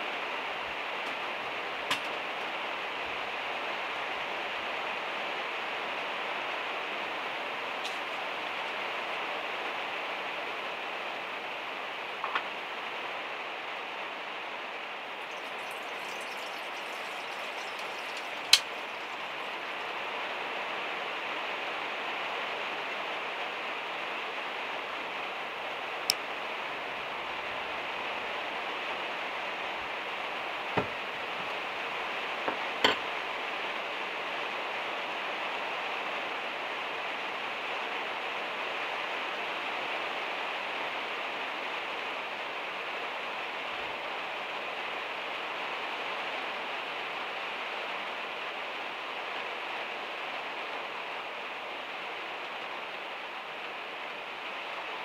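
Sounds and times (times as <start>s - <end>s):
rain on a metal roof: 0.0s - 25.8s.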